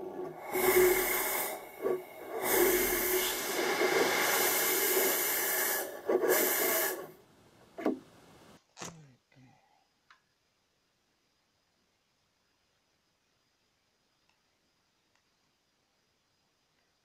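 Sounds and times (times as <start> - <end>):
rocket engine hissing: 0.0 - 7.2.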